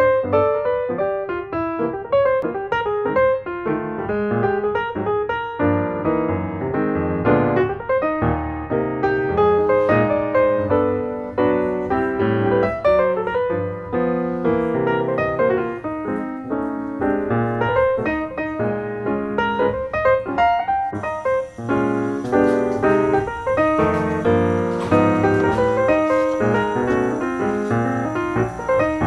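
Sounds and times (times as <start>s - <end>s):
solo piano music: 0.0s - 29.0s
faint high hiss: 8.9s - 29.0s.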